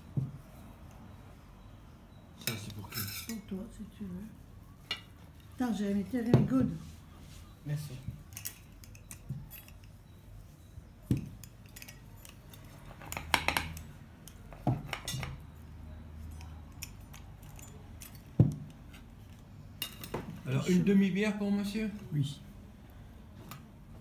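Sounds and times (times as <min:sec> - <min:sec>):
cutlery and plates clinking: 0:02.4 - 0:03.5, 0:08.2 - 0:10.0, 0:11.1 - 0:13.9, 0:14.7 - 0:15.5, 0:19.8 - 0:20.4.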